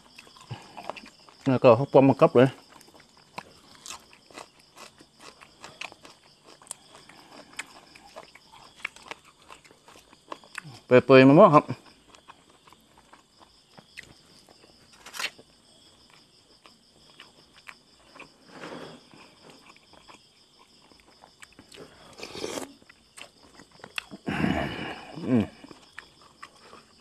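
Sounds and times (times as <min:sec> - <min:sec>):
chewing food: 0:00.0 - 0:01.6, 0:02.5 - 0:10.9, 0:11.7 - 0:24.3, 0:25.5 - 0:27.0
slurping broth: 0:18.4 - 0:19.2, 0:22.0 - 0:22.8.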